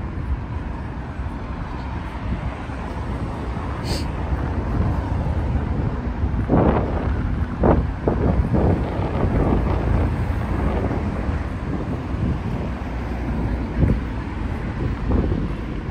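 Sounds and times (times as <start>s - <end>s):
traffic on a multi-lane road: 0.0s - 15.9s
wind rumbling on microphone: 0.0s - 15.9s.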